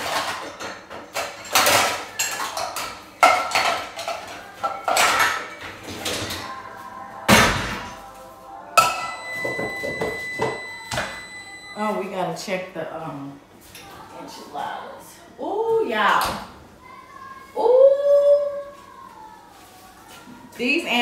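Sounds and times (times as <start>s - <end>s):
dishes and utensils clattering: 0.0s - 6.6s, 8.8s - 11.3s.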